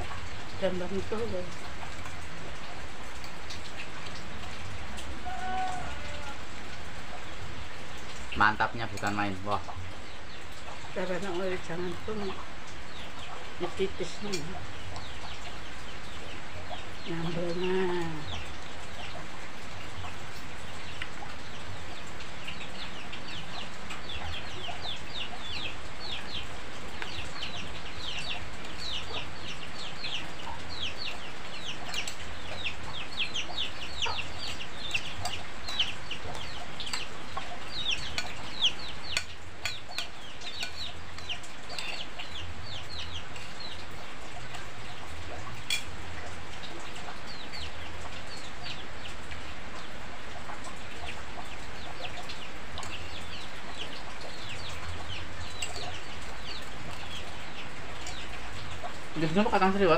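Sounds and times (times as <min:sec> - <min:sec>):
chicks peeping: 0:07.1 - 0:59.9
spoons clinking on plates: 0:39.1 - 0:42.1.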